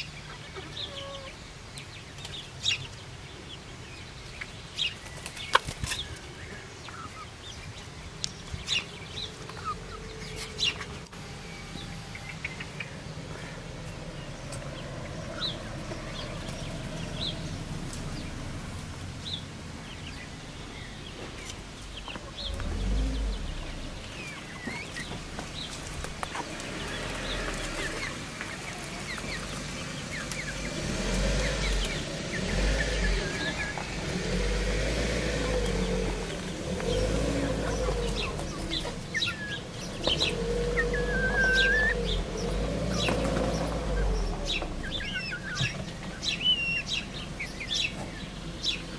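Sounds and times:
chicks calling and clucking: 0.0s - 48.9s
low rumble: 22.4s - 24.4s.

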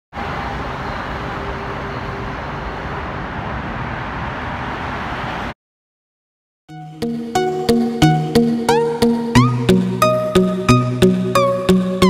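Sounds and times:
freeway traffic rushing: 0.1s - 5.6s.

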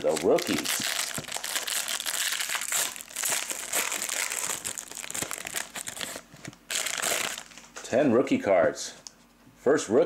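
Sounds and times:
foil wrapper crinkling: 0.0s - 7.7s.

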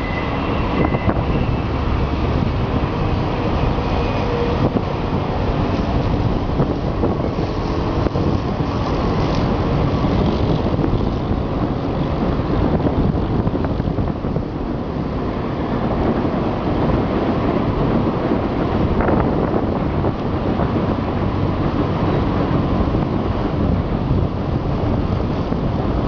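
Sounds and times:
wind on microphone: 0.0s - 26.0s.

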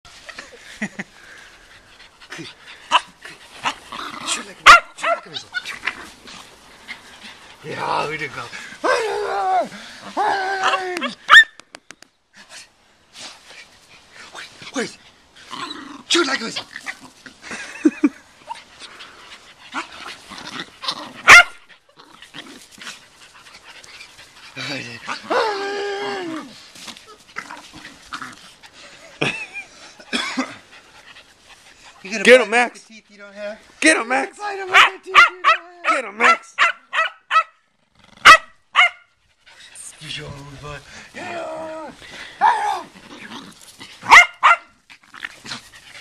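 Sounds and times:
puppies playing: 0.1s - 8.9s, 12.7s - 32.9s, 41.9s - 46.0s
dogs yipping and barking: 2.7s - 7.4s, 8.8s - 11.6s, 19.4s - 31.8s, 34.7s - 37.6s, 38.2s - 39.2s, 42.4s - 46.0s
puppy barking: 4.6s - 5.4s, 10.6s - 11.6s, 21.2s - 21.6s, 34.7s - 37.6s, 38.2s - 39.1s, 44.0s - 44.7s.

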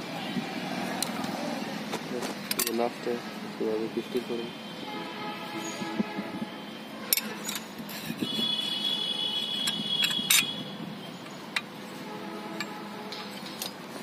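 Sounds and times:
steel parts clinking: 2.4s - 2.8s, 7.1s - 8.2s, 9.6s - 10.6s, 12.5s - 13.8s.

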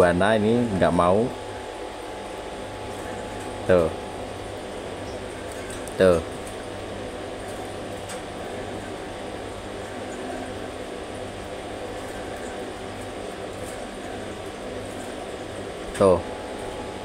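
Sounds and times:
background hum and hiss: 0.0s - 17.0s.

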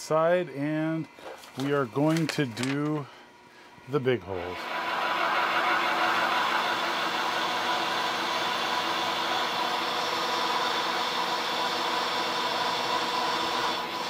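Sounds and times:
milling machine cutting metal: 4.4s - 14.0s.

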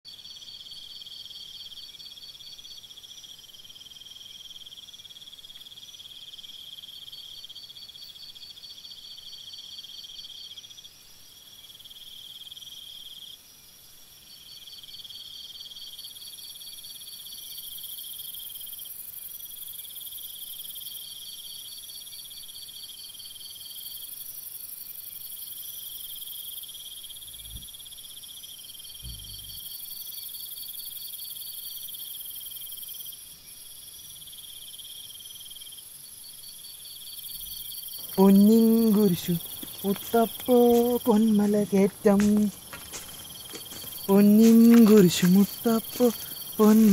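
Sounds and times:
insects chirping: 35.7s - 46.9s
high-pitched insect band: 37.3s - 46.9s.

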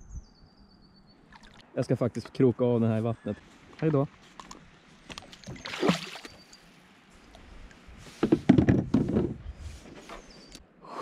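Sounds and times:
water splashing: 1.2s - 1.8s, 5.1s - 6.6s
knocks against kayak hull: 8.2s - 9.4s.

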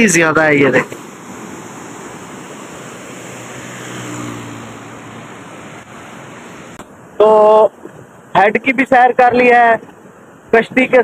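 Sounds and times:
water rushing through gate: 0.5s - 6.8s
motorcycle engine passing: 0.7s - 6.8s.

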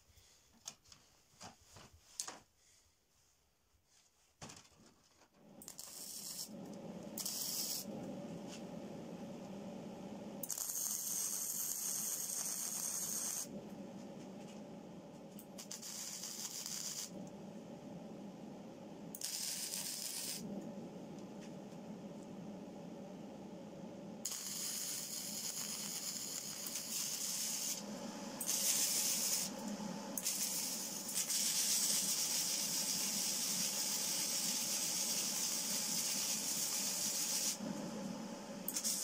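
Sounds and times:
arc welding crackling sizzle: 5.6s - 8.7s, 10.4s - 13.5s, 15.3s - 17.2s, 19.1s - 20.5s, 24.2s - 37.6s, 38.6s - 39.0s.

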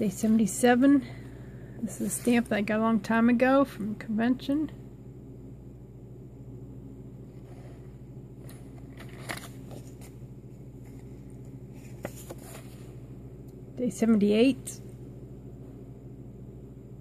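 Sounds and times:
steady low hum: 0.0s - 17.0s
paper cards tapping and rustling: 8.4s - 10.2s, 10.8s - 12.8s.

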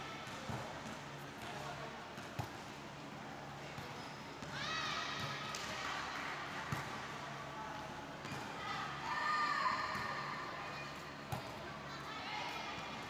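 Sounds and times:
volleyball slaps: 5.2s - 6.0s.

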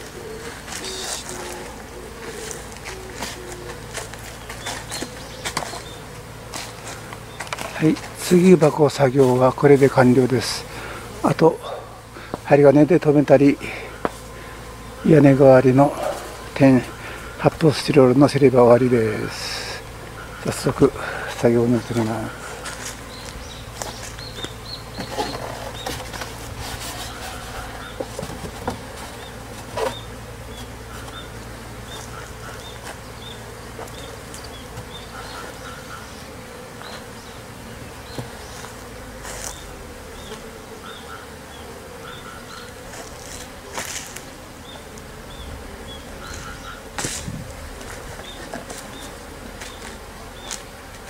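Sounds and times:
bees buzzing: 0.0s - 51.0s
wooden hive boxes knocking: 0.0s - 51.0s.

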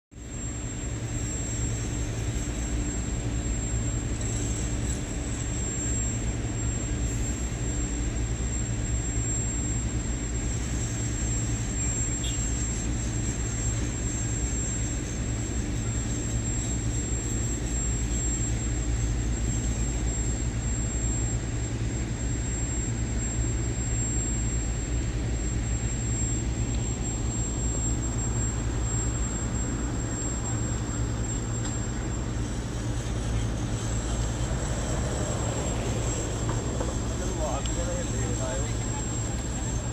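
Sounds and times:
thin high-pitched whine: 0.1s - 39.9s
heavy machinery rumbling: 29.4s - 39.9s.

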